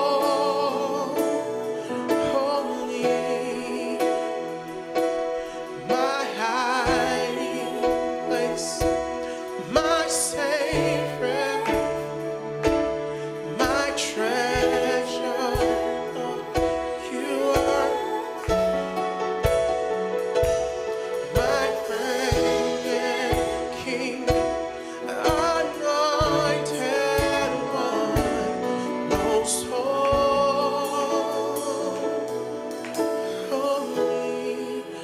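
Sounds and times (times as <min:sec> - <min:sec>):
man singing: 0:00.0 - 0:19.1, 0:21.0 - 0:35.0
sustained keyboard chords: 0:00.0 - 0:35.0
woman singing: 0:13.5 - 0:19.0.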